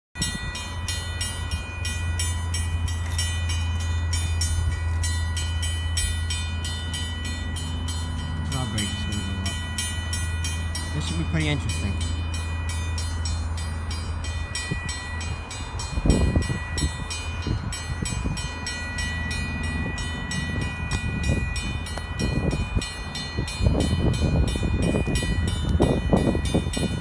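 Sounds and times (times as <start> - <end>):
steady low rumble: 0.2 - 27.0
wind gusts buffeting microphone: 12.9 - 27.0.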